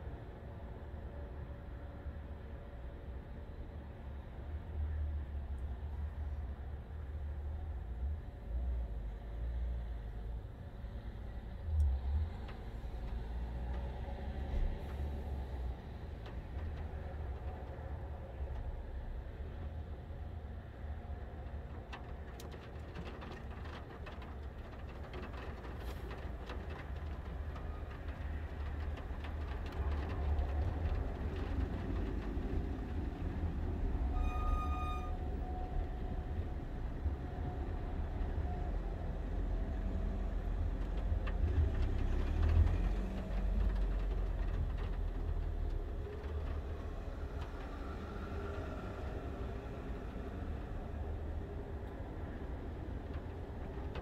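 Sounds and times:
high-pitched squeal: 34.1s - 35.7s.

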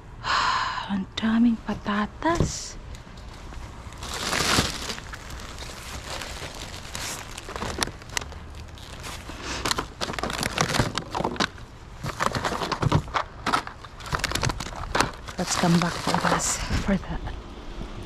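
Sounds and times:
plastic bags crinkling: 3.2s - 16.8s.

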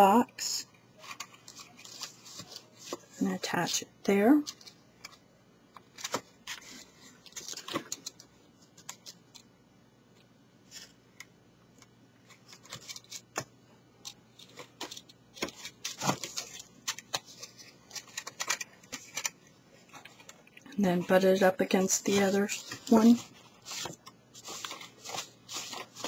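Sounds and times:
cardstock crackling and tapping: 11.8s - 21.2s, 21.9s - 26.0s.

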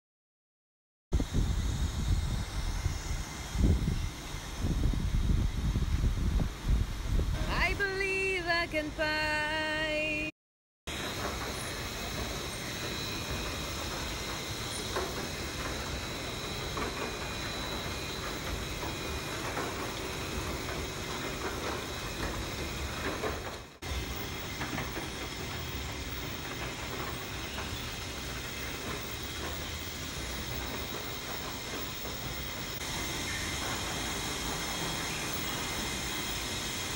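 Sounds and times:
crushing mill and conveyor running: 10.9s - 36.9s.

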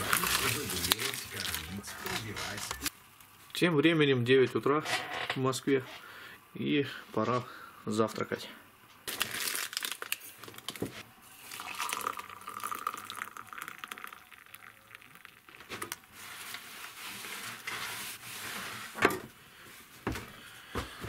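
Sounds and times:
hot water pouring into mug: 11.3s - 16.1s.

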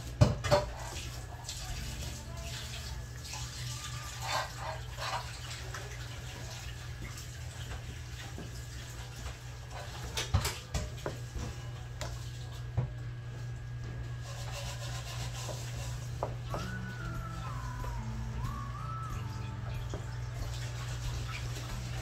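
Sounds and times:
pastry blender scraping in bowl: 14.2s - 16.3s.

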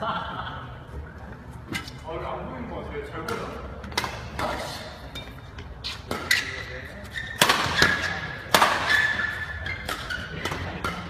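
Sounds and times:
rackets hitting shuttlecock: 3.2s - 11.0s.

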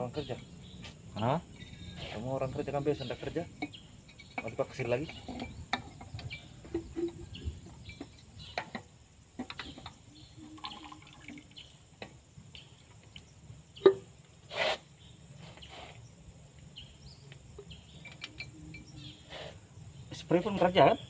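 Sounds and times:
tools clicking and knocking on metal: 3.6s - 10.0s
short hiss burst: 14.5s - 14.9s.

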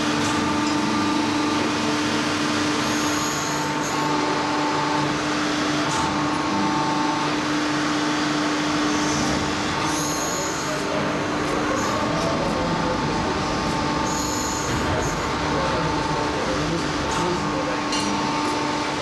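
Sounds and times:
machine hum with tones: 0.0s - 19.0s.

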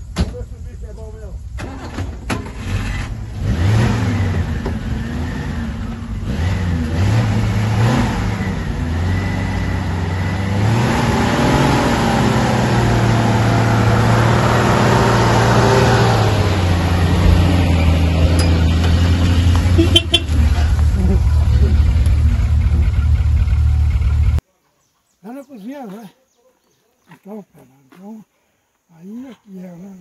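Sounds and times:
car engine revving: 2.4s - 24.4s.

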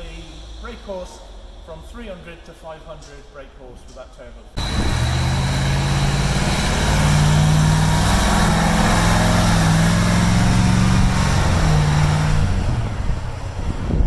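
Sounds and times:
diesel truck engine driving off: 4.6s - 14.0s.

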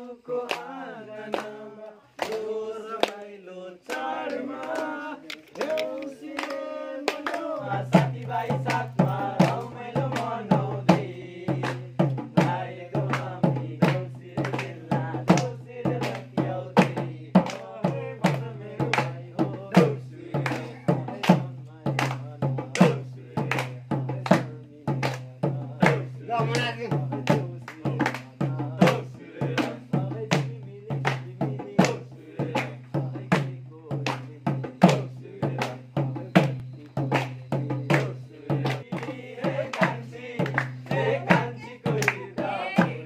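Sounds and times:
young men singing a chant: 0.0s - 43.0s
hand claps: 0.4s - 1.6s, 2.2s - 10.4s, 11.6s - 19.2s, 20.4s - 29.0s, 29.6s - 32.0s, 32.6s - 43.0s
hand drum beating: 36.0s - 43.0s.

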